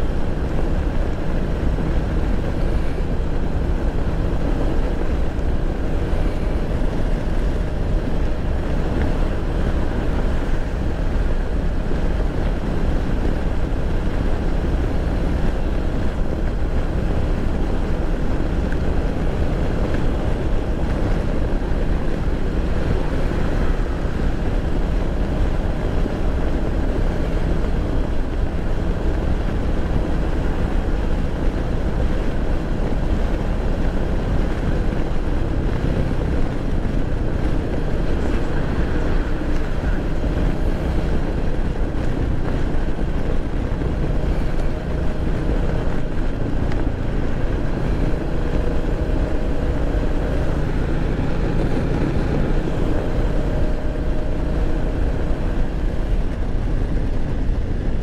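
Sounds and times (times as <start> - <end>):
motorcycle cruising: 0.0 - 58.0
wind on microphone: 0.0 - 58.0.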